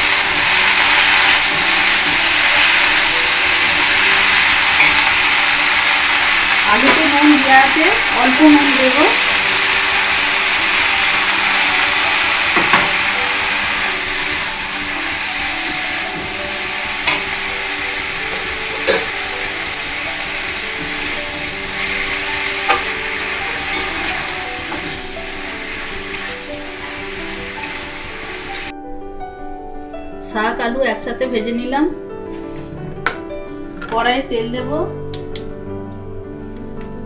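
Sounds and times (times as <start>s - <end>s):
greens sizzling in oil: 0.0s - 28.7s
metal spatula scraping pan: 17.0s - 17.5s, 22.0s - 26.4s.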